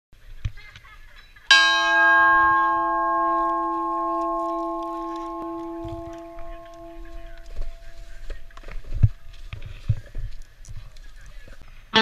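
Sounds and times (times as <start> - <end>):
large metal bell ringing: 1.5 - 9.4.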